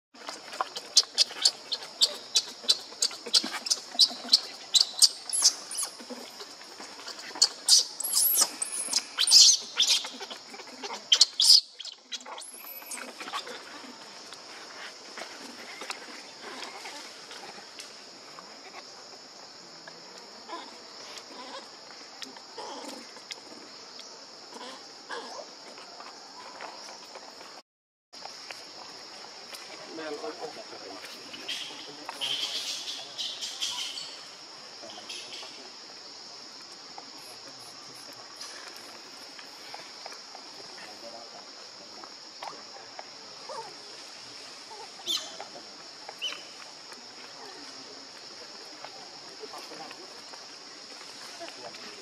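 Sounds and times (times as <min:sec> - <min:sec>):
baby monkey squeaking: 0:01.0 - 0:06.2, 0:07.4 - 0:10.4, 0:11.1 - 0:13.4
baby monkey squealing: 0:01.0 - 0:06.2, 0:07.1 - 0:13.5
baby monkey squeaky cries: 0:07.4 - 0:10.3, 0:11.1 - 0:13.0.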